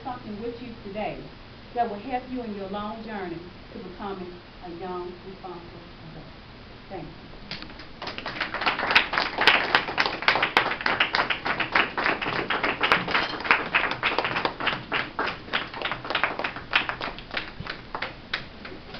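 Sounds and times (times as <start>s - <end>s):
people applauding: 7.7s - 18.9s.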